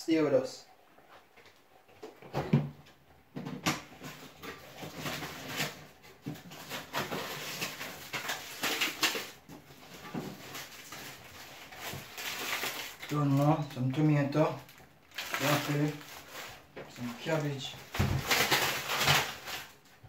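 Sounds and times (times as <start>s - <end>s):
bags rustling: 4.1s - 19.8s.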